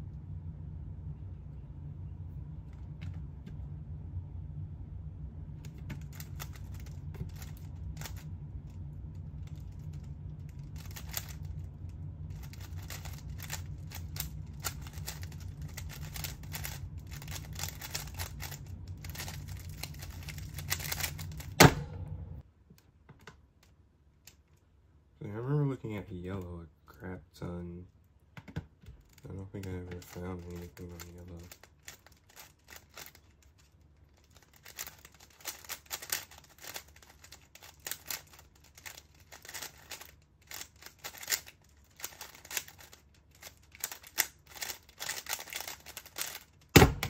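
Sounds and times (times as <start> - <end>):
plastic clicks of cube turning: 10.5 - 11.5, 12.4 - 21.6, 28.4 - 47.0.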